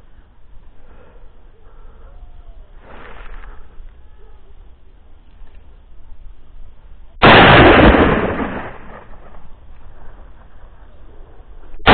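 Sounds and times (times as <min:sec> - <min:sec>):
loud gunshot with echo: 0:07.2 - 0:09.4.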